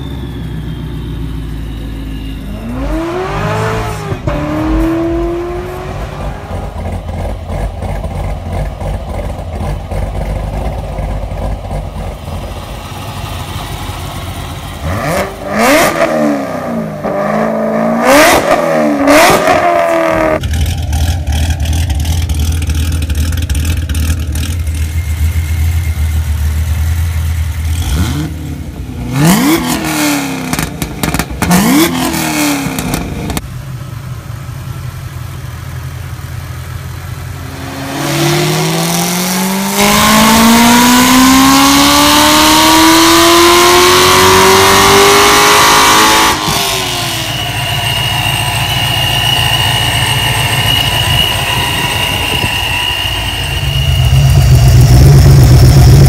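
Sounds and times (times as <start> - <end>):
car engine idling: 0.0 - 15.8, 20.2 - 29.4, 32.7 - 39.2, 46.4 - 56.0
engine climbing in pitch: 0.0 - 33.5, 36.8 - 56.0
engine revving: 2.1 - 11.0, 14.0 - 33.4, 37.4 - 56.0.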